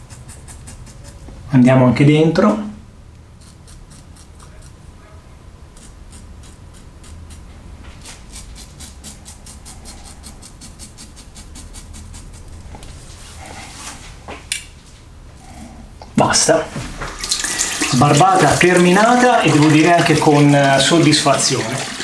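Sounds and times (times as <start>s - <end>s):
razor scraping stubble: 0.0s - 1.4s, 3.4s - 4.9s, 5.7s - 14.1s.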